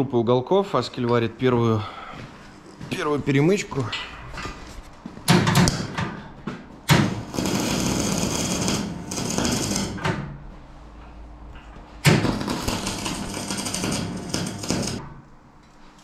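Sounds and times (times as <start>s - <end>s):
welding arc crackling: 6.9s - 10.3s, 12.0s - 15.1s.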